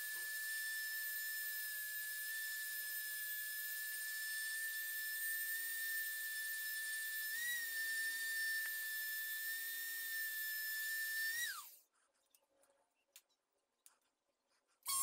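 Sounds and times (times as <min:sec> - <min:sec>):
rotary tool whining: 0:00.0 - 0:11.8.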